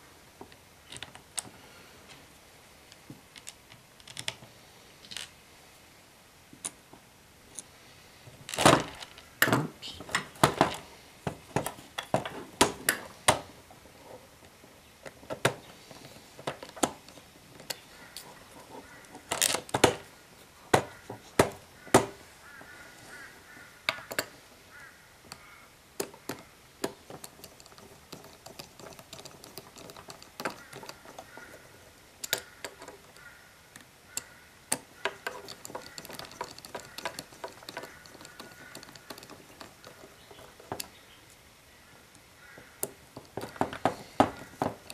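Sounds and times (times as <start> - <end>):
screwdriver ticking clicks: 26.0 - 31.6
plastic clicks and knocks on table: 26.0 - 40.9, 42.6 - 44.9.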